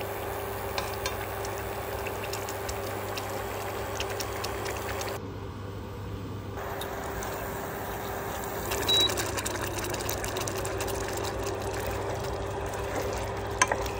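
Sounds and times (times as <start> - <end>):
sauce bubbling in a pan: 0.0 - 5.2, 6.6 - 13.9
high beep: 8.9 - 9.1.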